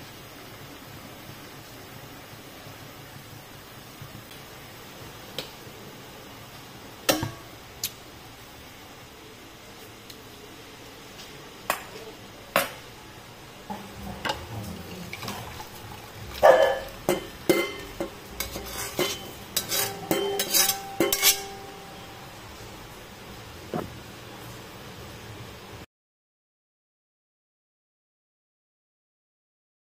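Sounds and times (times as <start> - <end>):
metal ladle clinking: 14.1 - 22.1.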